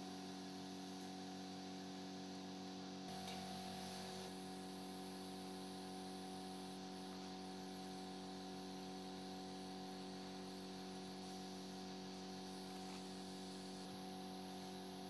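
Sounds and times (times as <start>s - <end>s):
faint electrical hum: 0.0s - 15.0s
light hiss: 3.0s - 15.0s.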